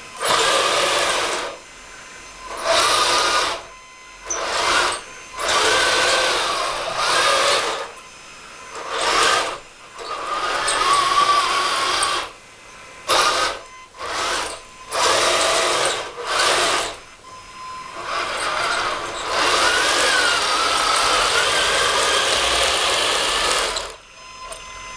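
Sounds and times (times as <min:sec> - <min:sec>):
toy tank motors whirring: 0:00.2 - 0:01.6, 0:02.5 - 0:08.0, 0:08.7 - 0:12.4, 0:13.1 - 0:17.0, 0:18.0 - 0:24.6.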